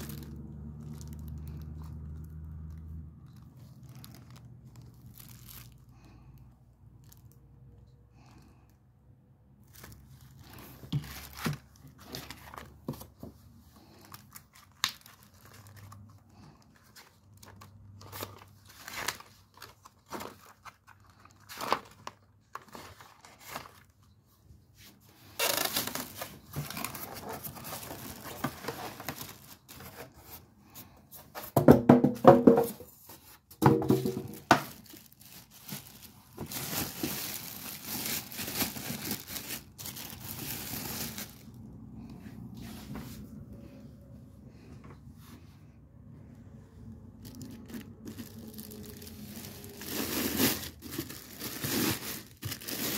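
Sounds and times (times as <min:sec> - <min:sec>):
plastic bags crinkling: 0:00.0 - 0:07.6, 0:09.6 - 0:24.2, 0:25.0 - 0:30.3, 0:33.3 - 0:41.8, 0:47.0 - 0:52.9.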